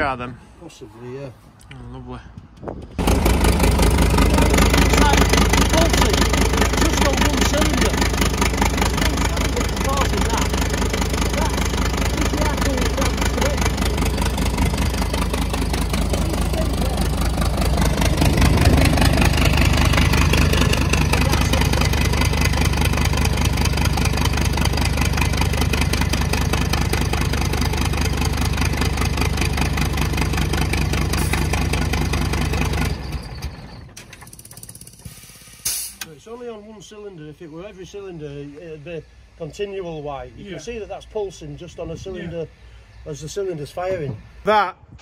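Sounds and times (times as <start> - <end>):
diesel engine running: 3.0 - 36.4.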